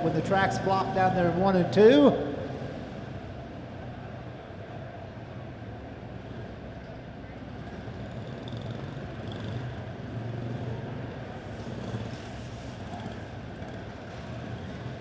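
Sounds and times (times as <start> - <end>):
small race car engines idling: 0.0 - 15.0.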